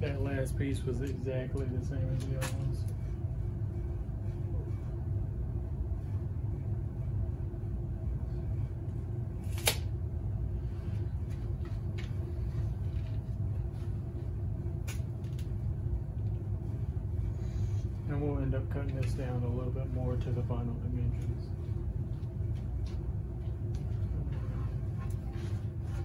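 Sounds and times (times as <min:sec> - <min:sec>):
low machine rumble: 0:00.0 - 0:26.0
tape measure blade snapping: 0:09.4 - 0:09.9.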